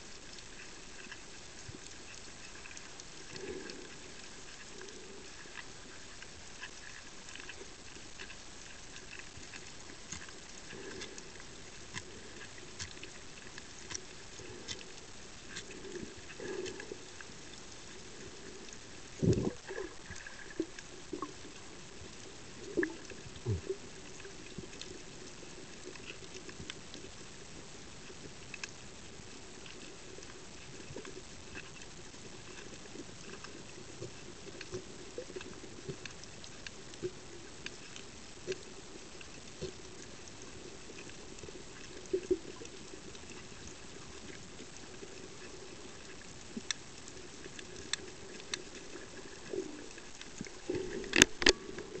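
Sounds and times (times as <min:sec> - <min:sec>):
reef clicks and crackles: 0:00.0 - 0:52.0
underwater hiss: 0:02.4 - 0:06.0, 0:15.6 - 0:21.7.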